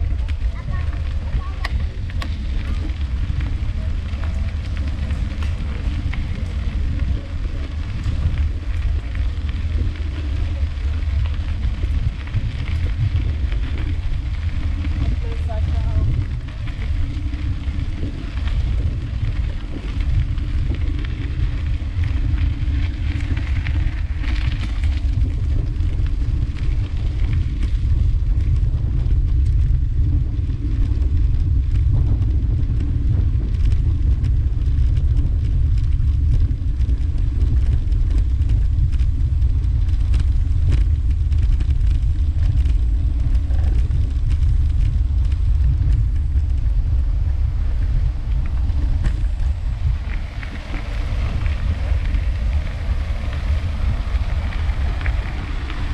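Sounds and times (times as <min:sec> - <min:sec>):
bicycle knocks and rattles: 0:00.0 - 0:55.9
bicycle tyres rumbling on cobblestones: 0:00.0 - 0:55.9.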